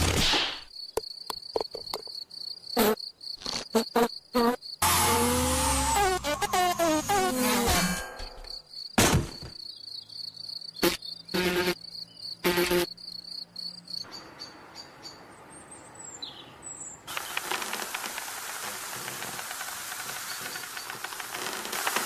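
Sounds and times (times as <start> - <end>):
high insect trill: 5.9 - 14.1
steady hiss: 17.1 - 22.0.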